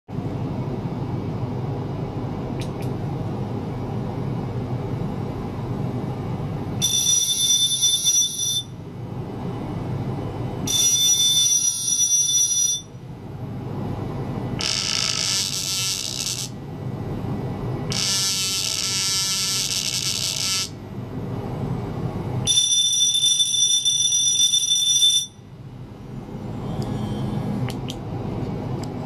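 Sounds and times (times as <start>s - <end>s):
steady low hum: 0.1s - 11.4s, 12.8s - 22.6s, 25.3s - 29.0s
high-pitched buzzing: 14.6s - 16.6s, 17.9s - 20.8s.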